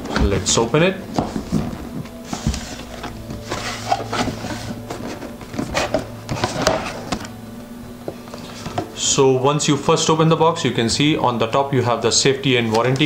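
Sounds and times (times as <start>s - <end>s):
cardboard scraping against cardboard: 0.2s - 7.2s.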